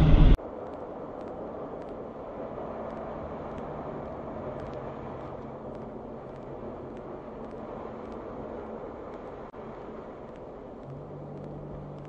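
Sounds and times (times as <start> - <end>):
car engine hum: 0.0 - 0.4, 10.8 - 12.0
faint light ticks: 2.8 - 3.7, 4.5 - 8.3, 10.2 - 12.0.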